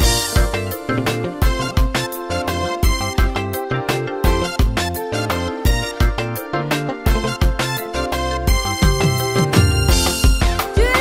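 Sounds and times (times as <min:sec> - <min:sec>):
melodic instruments: 0:00.0 - 0:11.0
drum beat: 0:07.1 - 0:07.8, 0:08.5 - 0:11.0.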